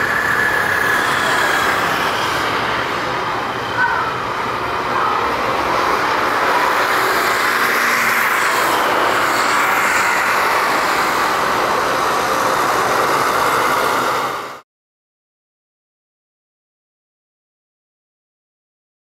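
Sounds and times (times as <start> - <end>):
jet engines roaring: 0.0 - 14.6.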